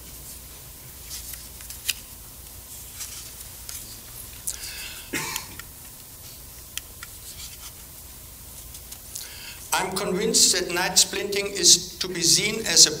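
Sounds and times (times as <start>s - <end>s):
person coughing: 4.7s - 5.6s.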